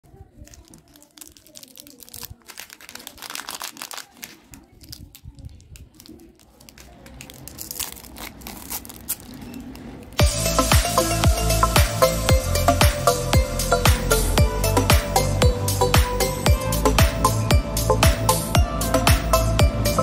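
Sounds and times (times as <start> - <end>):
plastic wrappers crinkling: 0.1 - 10.2
wrapper pulled open: 0.2 - 10.2
electronic music with steady beat: 10.2 - 20.0.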